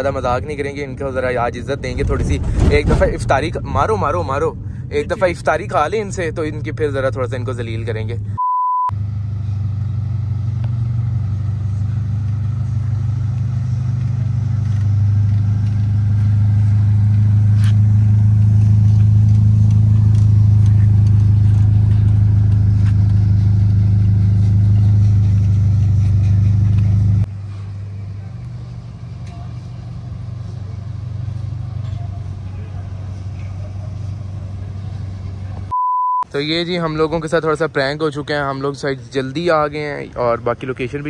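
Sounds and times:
car engine exhaust drone: 0.0s - 35.7s
short steady beep: 8.4s - 8.9s, 35.7s - 36.3s.

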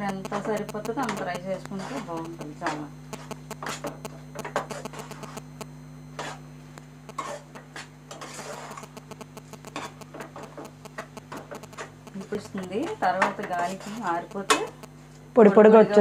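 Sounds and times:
spatula scraping metal pan: 7.1s - 8.8s.

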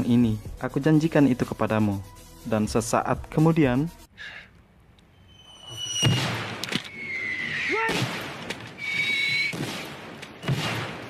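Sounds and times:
incoming shell whistle: 5.1s - 7.8s, 8.7s - 9.6s
loud explosions: 9.4s - 11.0s.

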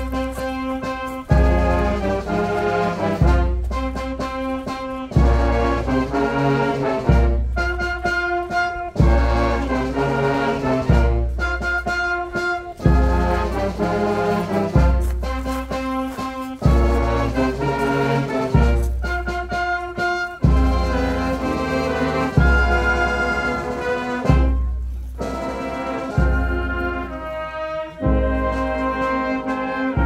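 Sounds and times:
brass band playing solemn music: 0.0s - 30.0s.

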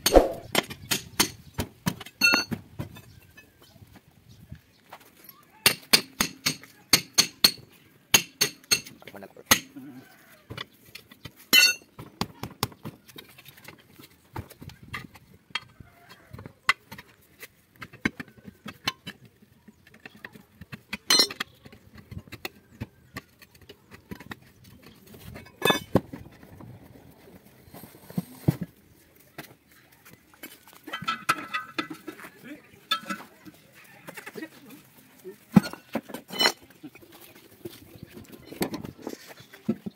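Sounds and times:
tyre levers clinking on metal rim: 21.1s - 21.4s.

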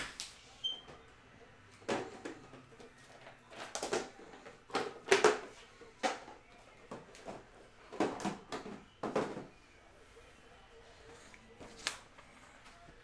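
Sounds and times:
objects knocking and rustling: 0.8s - 9.6s.

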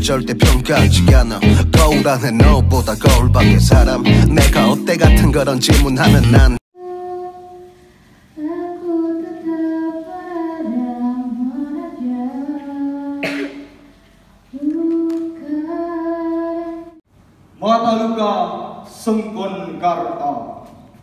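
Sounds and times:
woman singing unaccompanied: 6.1s - 13.8s, 14.5s - 17.0s.

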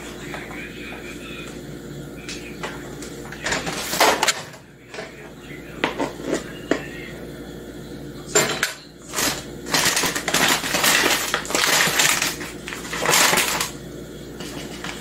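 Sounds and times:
paper bag crinkling: 9.1s - 13.8s.

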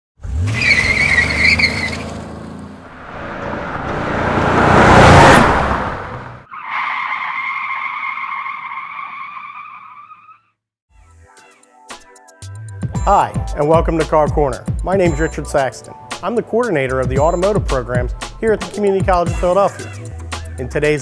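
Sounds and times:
car rushing past: 0.2s - 6.5s
engine revving: 0.2s - 6.5s
long tire screech: 0.2s - 10.5s
tires squealing: 0.2s - 10.5s.

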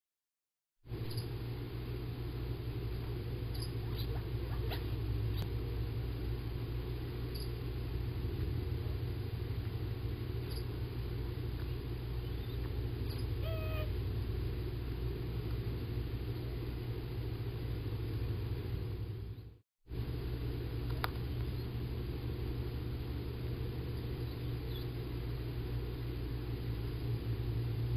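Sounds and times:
low outdoor rumble: 0.9s - 27.9s
short chirp: 7.3s - 7.6s.

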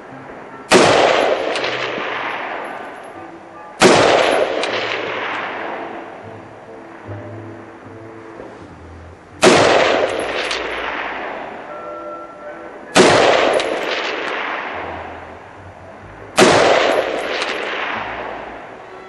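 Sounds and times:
gunshot echo: 0.7s - 3.2s, 3.8s - 6.2s, 9.4s - 11.6s, 13.0s - 15.1s, 16.4s - 18.6s
rifle shots: 0.7s - 3.2s, 3.8s - 6.2s, 9.4s - 11.6s, 13.0s - 14.9s, 16.4s - 18.6s.

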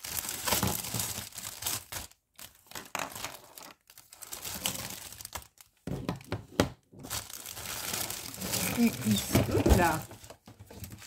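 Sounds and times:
plastic bag crinkling: 0.0s - 5.8s, 7.0s - 11.0s
plastic tubes clattering: 7.0s - 11.0s.

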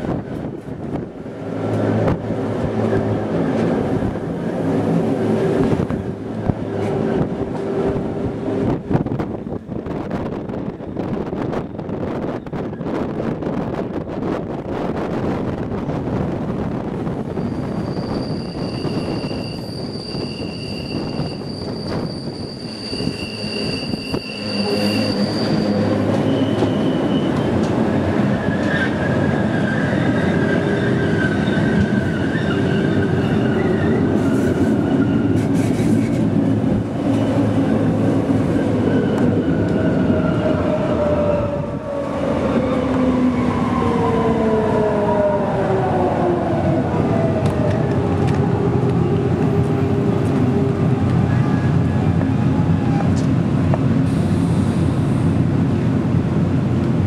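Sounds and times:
train rolling noise: 0.0s - 57.0s
train wheels squealing on curve: 17.3s - 27.7s, 28.3s - 36.2s.

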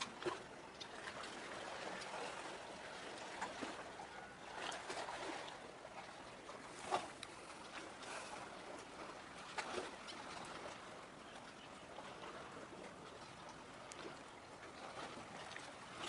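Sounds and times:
steady seaside hiss: 4.8s - 16.0s.

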